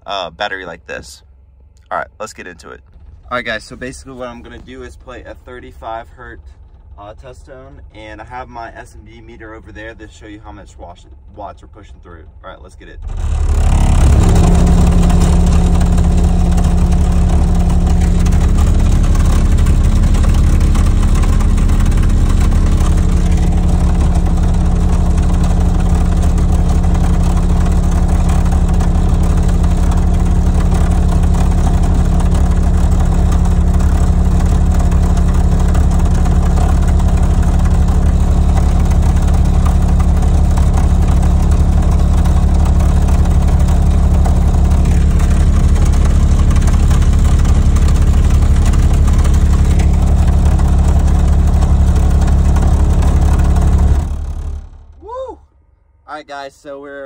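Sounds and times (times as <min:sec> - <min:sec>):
deep bass drone: 0:00.0 - 0:57.0
speaker rattling: 0:12.3 - 0:55.0.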